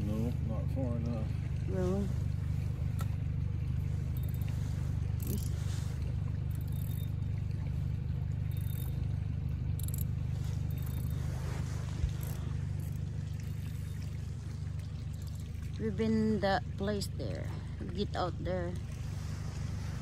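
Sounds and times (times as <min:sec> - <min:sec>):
boat engine rumble: 0:00.0 - 0:20.0
hissing splashes: 0:03.7 - 0:09.4, 0:10.1 - 0:20.0.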